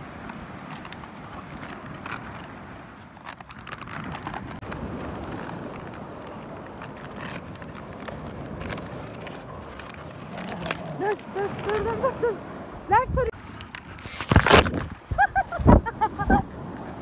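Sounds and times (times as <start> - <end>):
surf: 0.0 - 17.0
wind: 0.0 - 17.0
dogs chewing plastic bottle: 0.5 - 12.0, 13.5 - 14.9.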